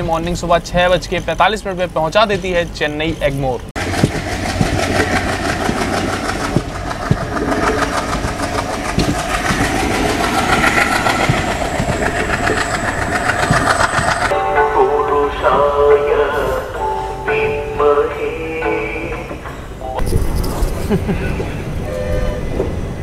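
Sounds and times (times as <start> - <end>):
wheel clicks over rail joints: 0.0 - 14.3
train rumble and rush: 0.0 - 23.0.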